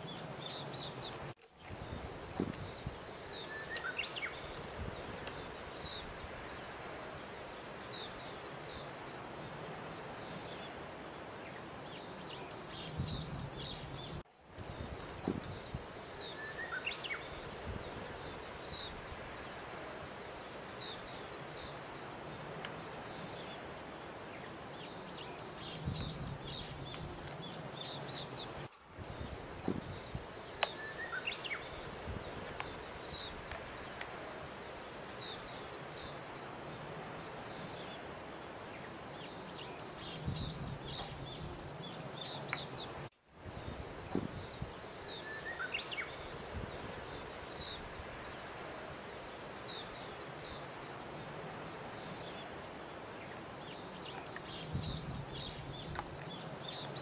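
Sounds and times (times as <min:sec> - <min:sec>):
outdoor background hiss: 0:00.0 - 0:57.0
small birds chirping: 0:00.0 - 0:57.0.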